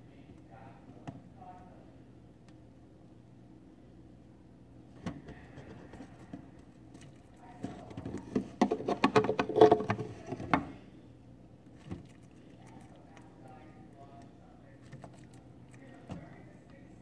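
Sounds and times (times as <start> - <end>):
plastic tube clicks and knocks: 7.9 - 10.7.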